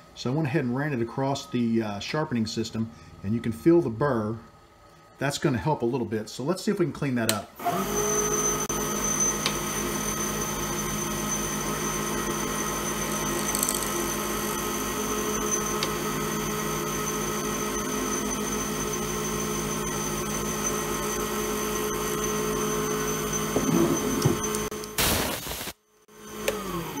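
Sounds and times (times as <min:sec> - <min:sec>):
lathe humming: 0:07.7 - 0:24.7
turning tool scraping resin: 0:13.4 - 0:14.0.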